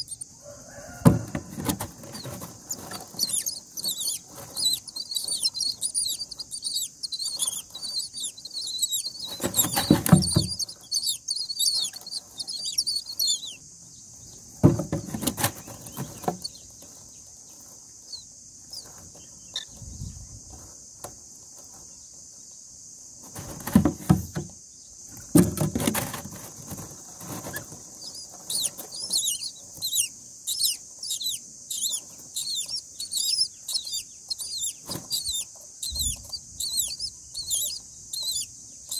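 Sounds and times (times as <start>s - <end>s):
nestlings cheeping: 0.0s - 20.0s, 27.3s - 38.9s
rustling and wing flapping: 0.7s - 11.0s, 14.6s - 17.8s, 23.2s - 24.5s, 25.2s - 30.0s, 34.7s - 36.4s.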